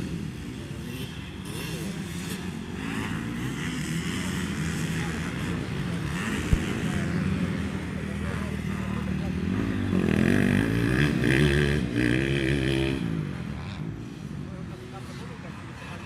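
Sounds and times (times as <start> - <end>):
dirt bike engines revving: 0.0 - 16.0.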